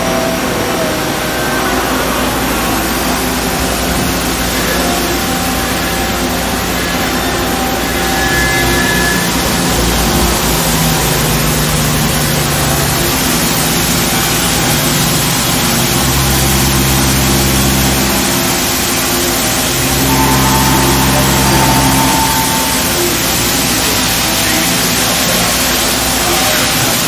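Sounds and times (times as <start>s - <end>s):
higher whine: 0.0s - 27.0s
low humming tones: 0.0s - 27.0s
machine cutting metal: 0.0s - 27.0s.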